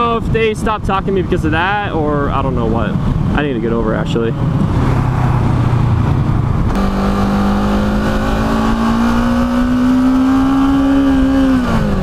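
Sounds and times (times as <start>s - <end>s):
wind rush: 0.0s - 12.0s
motorcycle engine accelerating: 4.4s - 12.0s.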